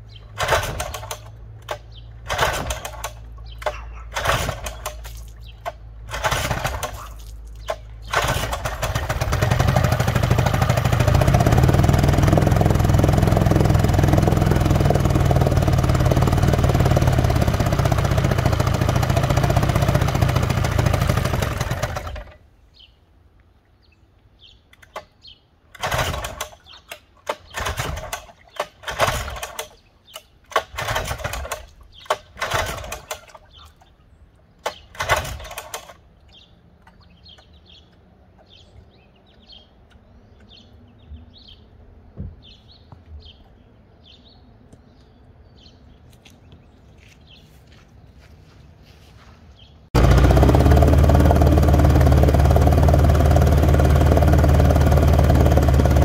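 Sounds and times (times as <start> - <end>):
two-stroke outboard motor running: 8.0 - 22.4, 50.0 - 56.0.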